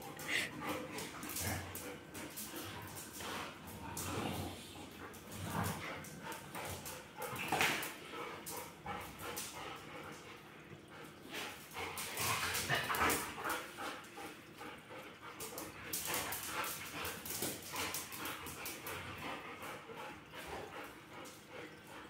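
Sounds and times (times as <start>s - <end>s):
dogs vocalizing: 0.0s - 7.3s
paws clicking on tile floor: 0.0s - 22.0s.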